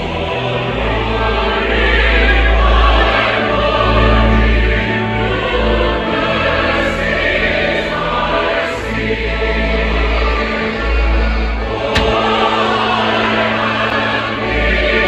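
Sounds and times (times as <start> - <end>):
choir singing: 0.0 - 15.0
sustained bass notes: 10.3 - 15.0.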